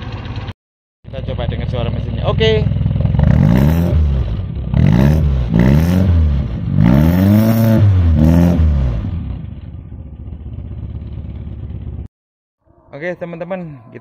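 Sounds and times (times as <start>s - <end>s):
car engine revving and idling: 1.1s - 12.1s.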